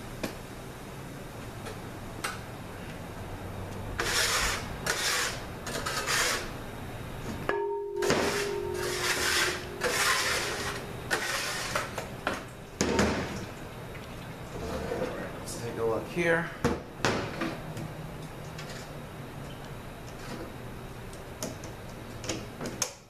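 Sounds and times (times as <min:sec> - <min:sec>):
faint steady hum: 0:00.0 - 0:23.0
scraping on metal workbench: 0:08.0 - 0:12.1, 0:14.6 - 0:15.2.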